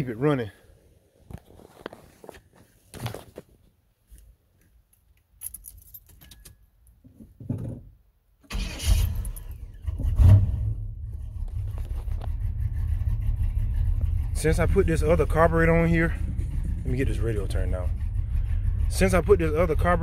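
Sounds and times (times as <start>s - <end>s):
keys rattling: 5.4s - 6.6s
truck engine starting and idling: 8.4s - 20.0s.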